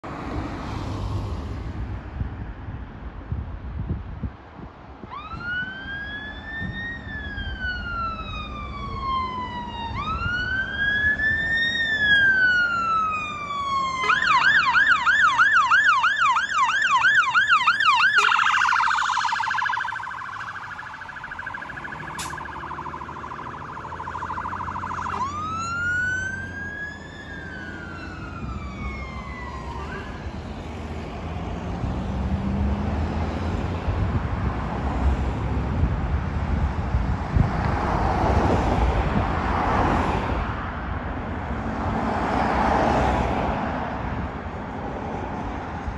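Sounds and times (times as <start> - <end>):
traffic noise: 0.0 - 45.9
fire engine siren: 5.0 - 34.1.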